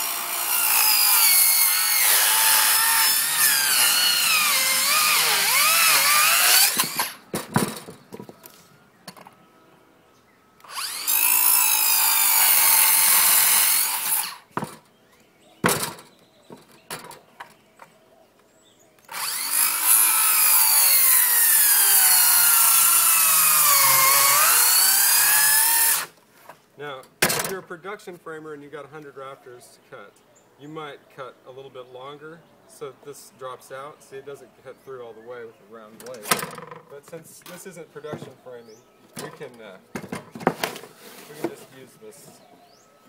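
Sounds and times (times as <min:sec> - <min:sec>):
circular saw cutting wood: 0:00.0 - 0:07.2, 0:10.6 - 0:14.5, 0:19.1 - 0:26.2.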